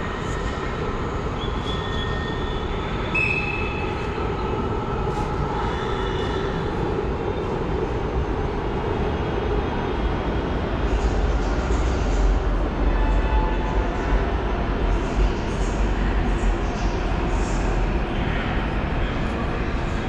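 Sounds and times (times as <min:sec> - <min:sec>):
metro station rumble and hum: 0:00.0 - 0:20.0.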